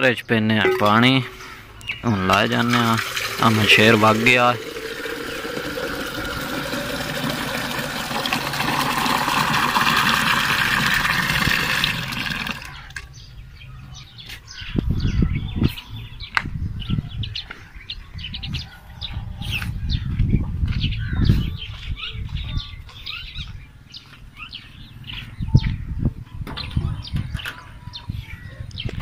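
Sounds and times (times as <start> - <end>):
pot clicks: 2.3 - 11.1
tap water pouring into metal pot: 2.3 - 13.0.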